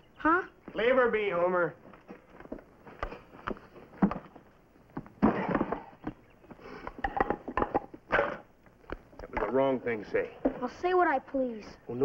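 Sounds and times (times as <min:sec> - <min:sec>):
firewood logs knocking: 0:01.9 - 0:09.7.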